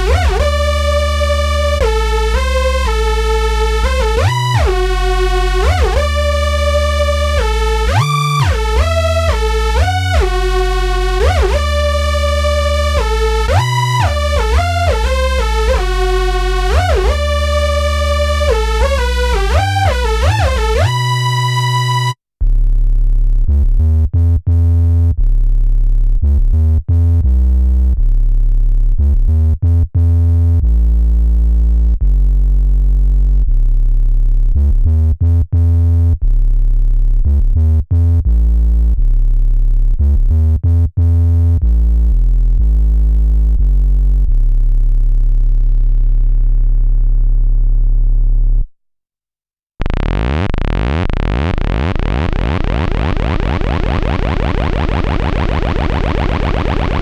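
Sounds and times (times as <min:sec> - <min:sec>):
bright synthesizer patch: 0:00.0 - 0:22.2
synthesizer deep bass notes: 0:00.0 - 0:48.8, 0:49.8 - 0:57.0.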